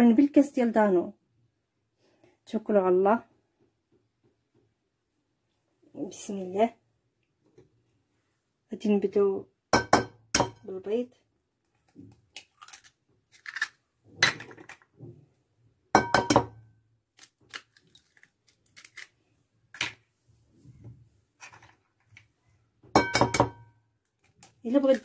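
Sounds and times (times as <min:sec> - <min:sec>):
eggs tapping glass bowl: 0:09.8 - 0:10.6, 0:16.0 - 0:16.6, 0:23.0 - 0:23.6.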